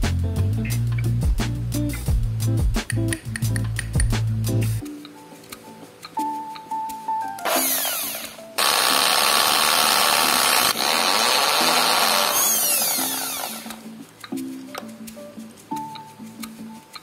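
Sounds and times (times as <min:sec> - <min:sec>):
background music: 0:00.0 - 0:17.0
electric drill cutting metal: 0:07.4 - 0:13.8.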